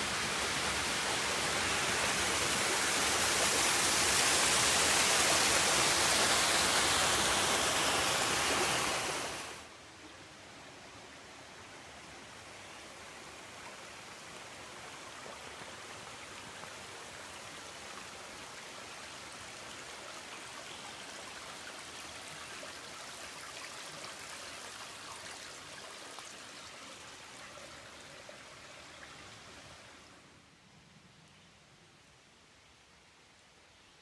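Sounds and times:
stream water rushing: 0:00.0 - 0:30.5.

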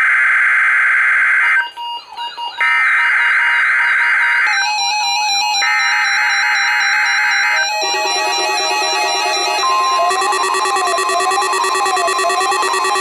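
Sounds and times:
data tone bursts: 0:06.2 - 0:13.0.

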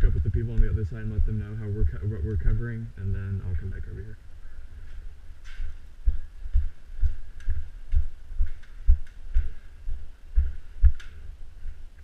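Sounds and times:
footsteps thumping: 0:00.0 - 0:02.7, 0:04.8 - 0:11.4.

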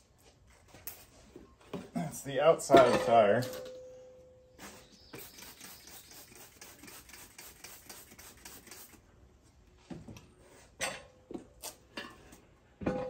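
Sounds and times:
spray bottle squirting: 0:04.6 - 0:09.0.

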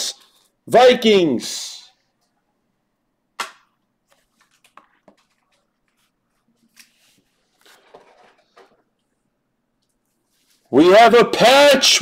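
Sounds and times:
cards rustling and shuffling: 0:04.0 - 0:08.9.

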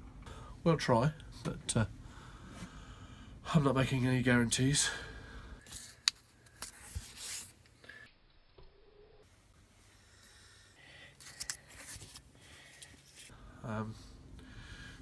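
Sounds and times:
paper sticky notes rustling: 0:11.2 - 0:13.3.

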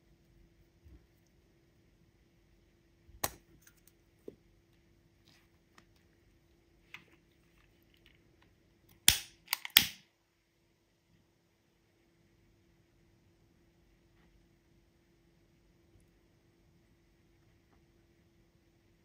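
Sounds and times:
utility lighter clicking: 0:09.1 - 0:10.0.

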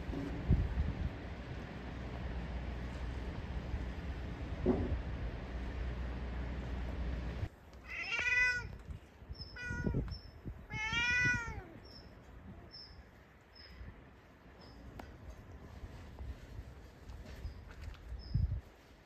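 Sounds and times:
steady low rumble: 0:00.0 - 0:07.7
cat meowing: 0:07.8 - 0:08.8, 0:09.5 - 0:10.1, 0:10.7 - 0:11.8.

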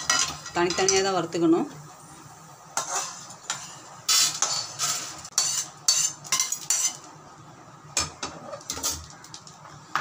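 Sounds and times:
metal spatula scraping metal pan: 0:02.8 - 0:07.0.

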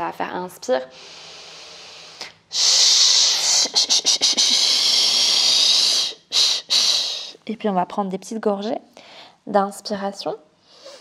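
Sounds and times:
long exhaled shh hiss: 0:00.9 - 0:07.4
woman inhaling through nose: 0:00.9 - 0:07.4, 0:10.6 - 0:11.0.

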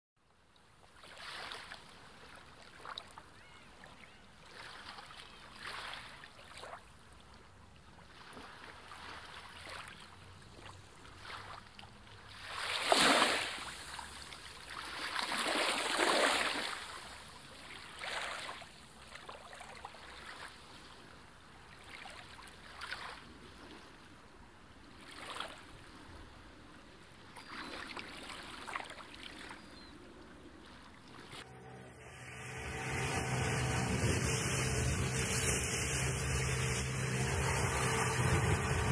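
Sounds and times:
waves breaking on a shore: 0:00.6 - 0:31.5.

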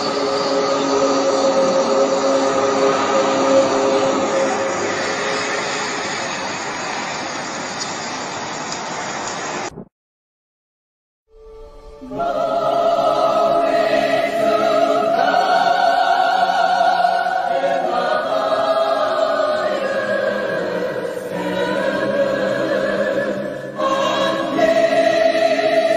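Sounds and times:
choir singing sustained chords: 0:00.0 - 0:07.1, 0:11.3 - 0:25.9.

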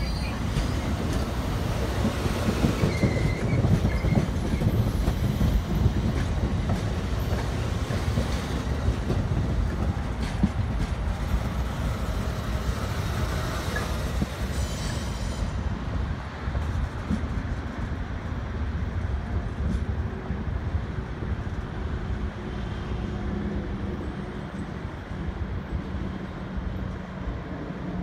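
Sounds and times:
high wheel squeal: 0:00.0 - 0:00.5, 0:02.7 - 0:05.3, 0:14.4 - 0:15.5
train wheels rumbling and clacking: 0:00.0 - 0:28.0.

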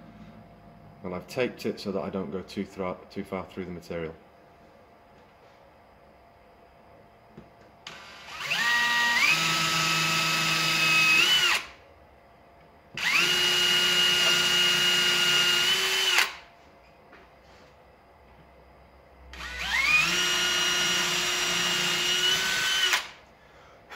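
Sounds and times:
cordless drill motor whine: 0:07.8 - 0:11.8, 0:13.0 - 0:16.5, 0:19.3 - 0:23.2.

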